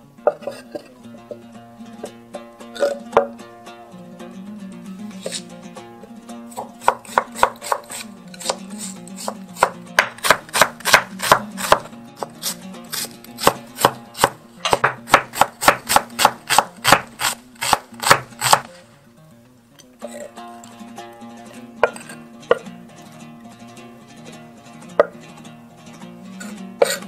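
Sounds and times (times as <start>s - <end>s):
cleaver chopping on wooden board: 6.5s - 8.6s, 9.2s - 12.3s, 13.0s - 18.7s.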